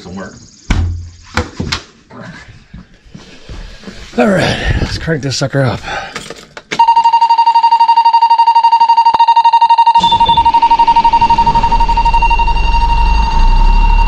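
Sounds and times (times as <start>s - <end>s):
pulsing warning buzzer: 6.8s - 14.0s
diesel engine cranking and idling: 10.0s - 14.0s.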